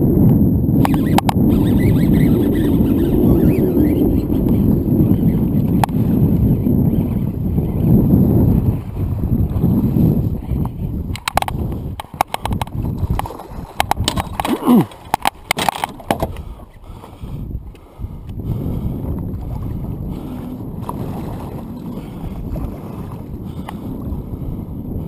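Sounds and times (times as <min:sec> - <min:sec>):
wind on microphone: 0:00.0 - 0:25.0
fishing reel knocks and clicks: 0:00.8 - 0:02.0, 0:11.1 - 0:16.4
water sloshing against boat hull: 0:08.6 - 0:17.3, 0:19.2 - 0:24.2.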